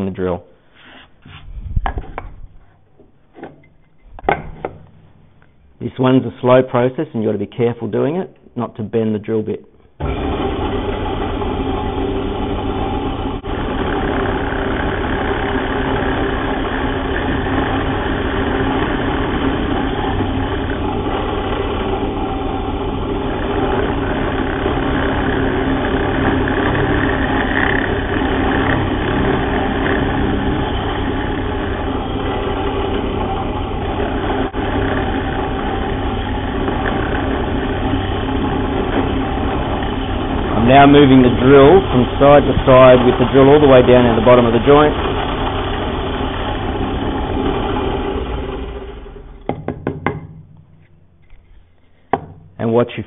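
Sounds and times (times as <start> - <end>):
drill bit cutting wood: 10.0 - 49.6
drill press motor running: 10.0 - 52.6.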